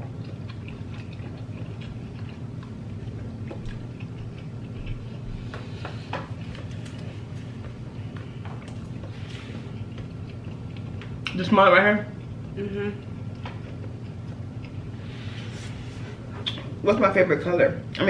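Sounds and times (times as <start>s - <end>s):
chewing: 0.0s - 11.4s, 12.1s - 15.2s.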